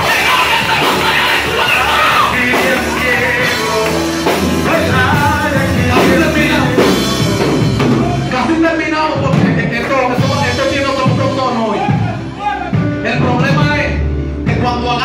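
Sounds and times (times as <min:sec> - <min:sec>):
voices singing: 0:00.0 - 0:12.9
drum kit: 0:00.0 - 0:15.0
live worship band music: 0:00.0 - 0:15.0.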